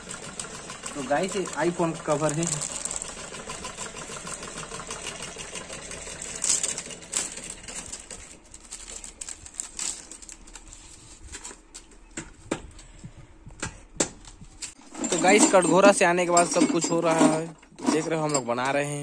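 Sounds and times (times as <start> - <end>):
fast mechanical rattle: 0.0 - 10.4
plastic packaging crinkling: 0.9 - 3.8, 6.2 - 11.9.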